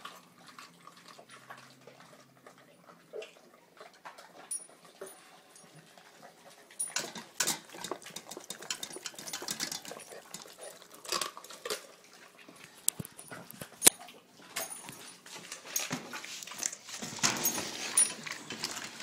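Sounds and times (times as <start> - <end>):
dogs chewing and crunching: 0.0 - 19.0
clinks against metal bowl: 6.8 - 11.3.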